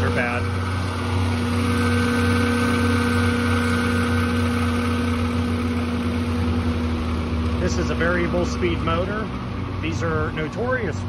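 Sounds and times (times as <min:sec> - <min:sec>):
bearing whining tones: 0:00.0 - 0:11.0
fan motor low hum: 0:00.0 - 0:11.0.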